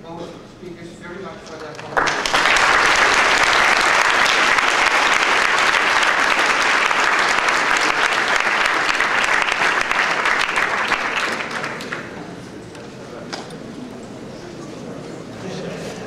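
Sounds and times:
audience applauding: 0:01.7 - 0:12.3.

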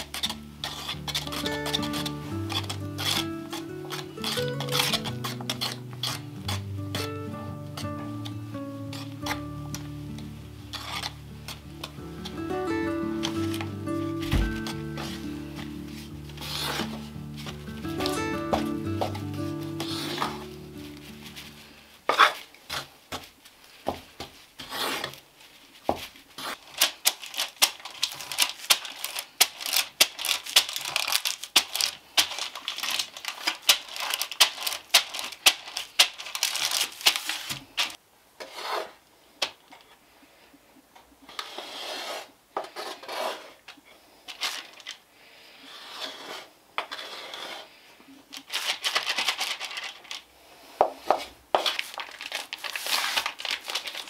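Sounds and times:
fingers rubbing metal pan: 0:00.0 - 0:13.7
spatula scraping ceramic bowl: 0:00.0 - 0:13.7, 0:14.3 - 0:21.5, 0:45.7 - 0:47.7.

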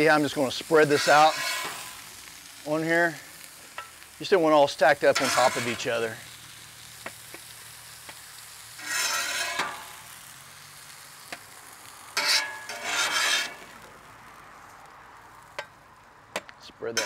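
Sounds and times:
meat sizzling on griddle: 0:00.0 - 0:17.0
metal spatula scraping griddle: 0:00.2 - 0:02.4, 0:05.0 - 0:06.2, 0:08.4 - 0:10.2, 0:12.2 - 0:13.8.

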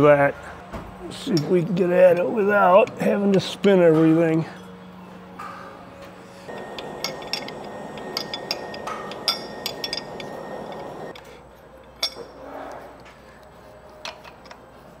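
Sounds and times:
machine whir with high tone: 0:06.5 - 0:11.2
wrench clinking on metal: 0:06.5 - 0:12.4.

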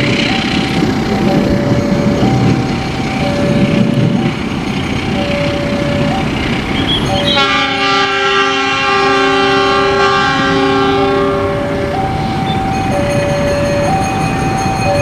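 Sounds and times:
train rumble: 0:00.0 - 0:15.0
two-tone warning signal: 0:00.0 - 0:15.0
train horn chord: 0:06.8 - 0:12.6.

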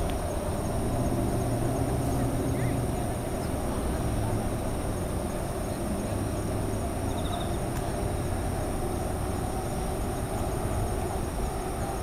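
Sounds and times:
city traffic rumble: 0:00.0 - 0:12.0
crickets trilling: 0:00.0 - 0:12.0.

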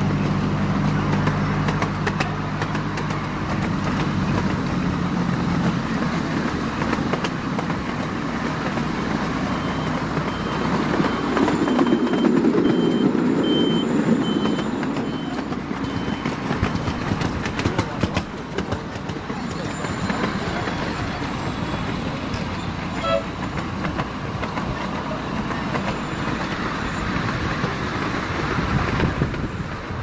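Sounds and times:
passing vehicle rumble: 0:00.0 - 0:30.0
reversing alarm beeps: 0:09.5 - 0:16.4.

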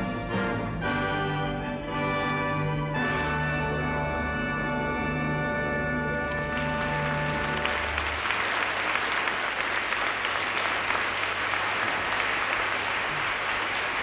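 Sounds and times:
orchestral chord: 0:00.0 - 0:08.0
audience applauding: 0:06.3 - 0:14.0.

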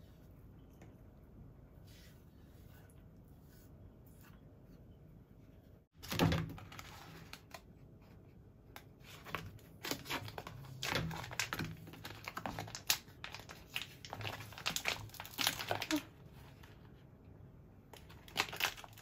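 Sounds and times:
plastic packet crinkling: 0:09.3 - 0:16.1, 0:18.0 - 0:19.0.

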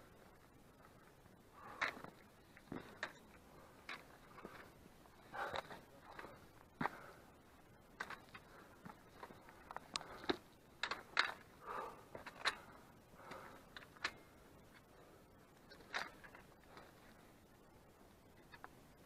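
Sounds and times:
footsteps on rock and stones: 0:01.8 - 0:03.2.

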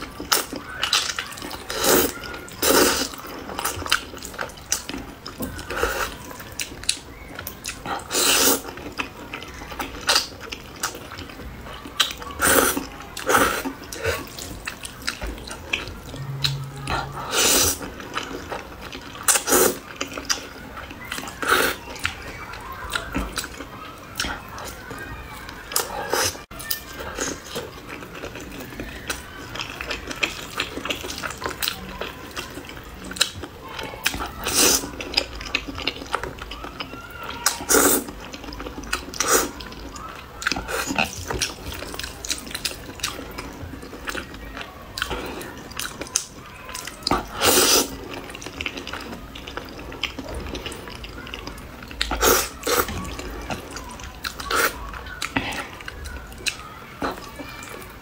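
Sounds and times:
wet chewing: 0:00.0 - 0:57.9
noodle slurps: 0:47.1 - 0:48.0, 0:52.1 - 0:53.7.

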